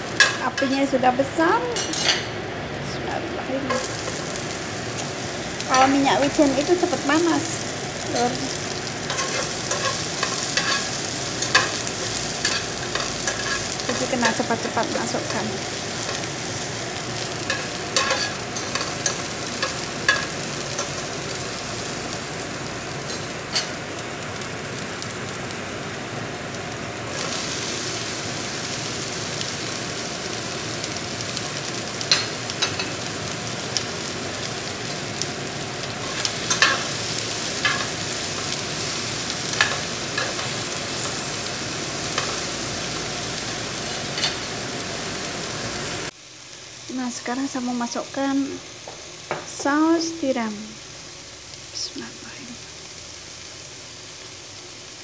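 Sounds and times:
vegetables sizzling in oil: 0:00.0 - 0:55.0
spatula scraping and tapping pan: 0:09.1 - 0:13.7.

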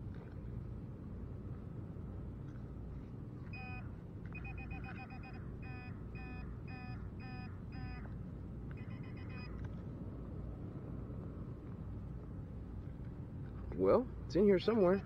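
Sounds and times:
short electronic beeps: 0:03.5 - 0:08.0, 0:08.8 - 0:09.6.

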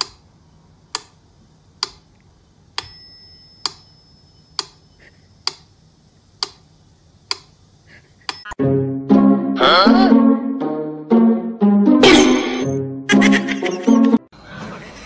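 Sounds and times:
mechanical ticking: 0:00.0 - 0:00.3, 0:00.9 - 0:01.2, 0:01.8 - 0:02.1, 0:02.7 - 0:05.7, 0:06.4 - 0:07.6
bell-like ringing tick: 0:02.8 - 0:04.7.

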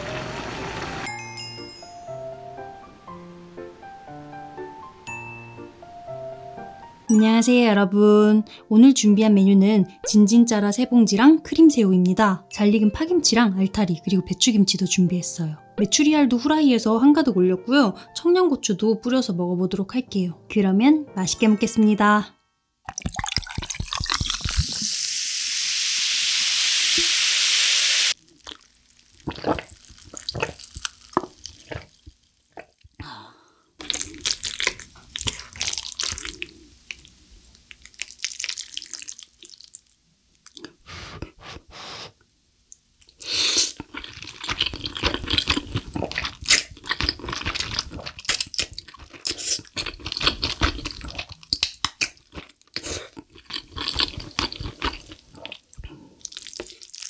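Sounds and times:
sparkling water fizzing over ice: 0:23.1 - 0:32.5
chewing with wet smacks: 0:28.4 - 0:32.9, 0:33.8 - 0:39.8, 0:43.8 - 0:57.0
slurping noodles: 0:29.2 - 0:32.0, 0:33.8 - 0:36.7, 0:43.2 - 0:51.4.

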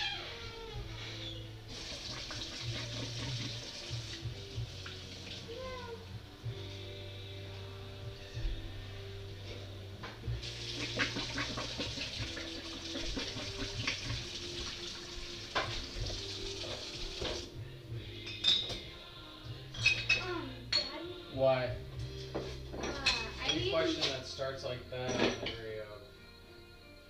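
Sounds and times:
tap water running into sink: 0:01.7 - 0:05.5, 0:10.4 - 0:17.5
dishes and cutlery clinking: 0:15.5 - 0:17.5, 0:18.2 - 0:18.9, 0:19.7 - 0:21.1, 0:22.2 - 0:24.2, 0:25.0 - 0:25.8.

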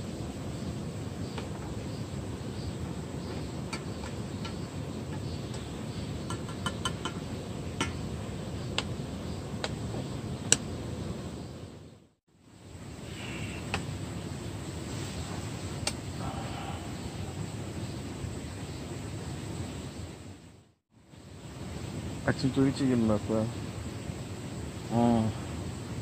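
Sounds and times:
spoon tapping metal cup: 0:06.3 - 0:07.2.

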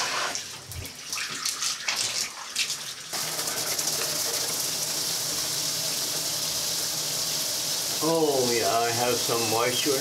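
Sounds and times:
shower spraying water: 0:00.0 - 0:10.0.

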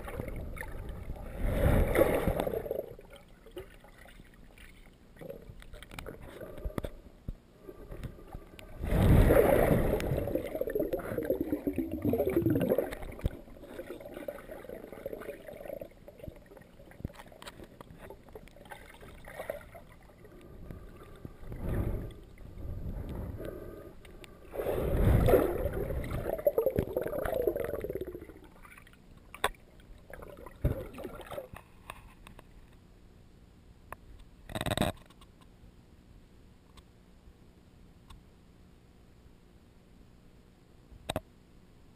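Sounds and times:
underwater gurgling and sloshing: 0:00.0 - 0:32.8.

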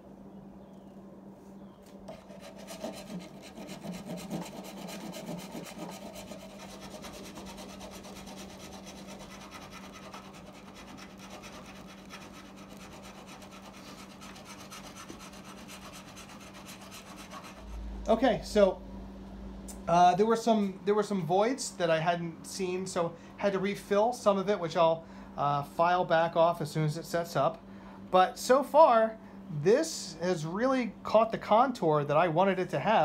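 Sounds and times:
hand file rasping on wood: 0:02.1 - 0:17.7.

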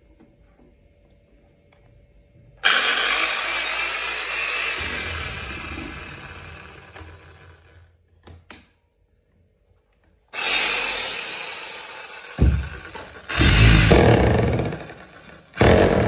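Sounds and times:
demolition hammer running: 0:02.6 - 0:07.8, 0:10.4 - 0:16.0.

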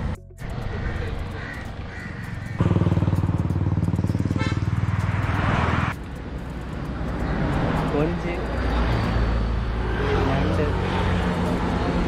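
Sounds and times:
road ambience: 0:00.0 - 0:12.0
vehicle engine running loudly: 0:01.4 - 0:07.7.

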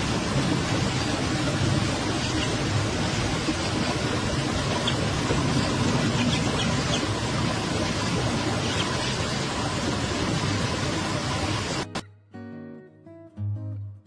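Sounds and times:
steady rushing noise: 0:00.0 - 0:12.0
duckling peeping: 0:02.1 - 0:02.6, 0:04.6 - 0:07.2, 0:08.6 - 0:09.2.

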